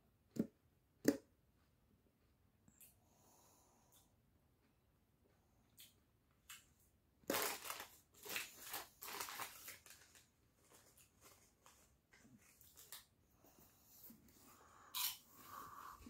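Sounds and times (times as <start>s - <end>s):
rustling and crackling: 7.3s - 13.2s.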